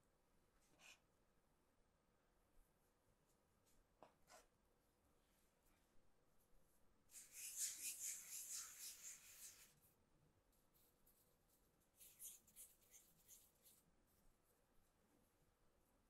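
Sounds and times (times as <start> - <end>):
fingertips rubbing flour on board: 7.2 - 9.7.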